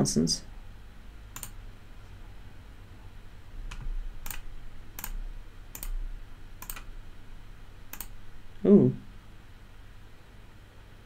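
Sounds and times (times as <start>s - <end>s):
steady low hum: 0.0s - 11.0s
computer mouse clicking: 1.3s - 1.6s, 3.7s - 4.4s, 5.0s - 6.0s, 6.6s - 6.9s, 7.9s - 8.2s.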